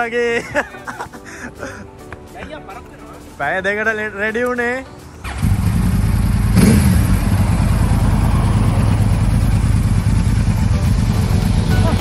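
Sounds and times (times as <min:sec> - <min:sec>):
motorcycle engine idling: 0:05.2 - 0:12.0.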